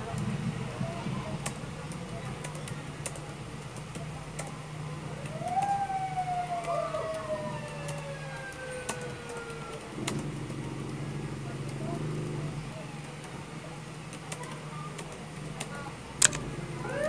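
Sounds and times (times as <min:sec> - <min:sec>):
ambulance siren wailing: 0:05.2 - 0:13.3, 0:16.8 - 0:17.0
keyboard typing clicks: 0:14.1 - 0:16.4.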